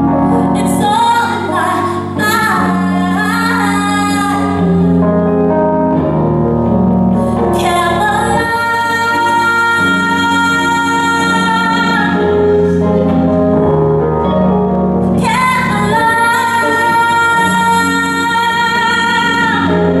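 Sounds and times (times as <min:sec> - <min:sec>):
woman singing: 0:00.0 - 0:05.2, 0:07.4 - 0:13.1, 0:15.2 - 0:20.0
stage piano: 0:00.0 - 0:20.0.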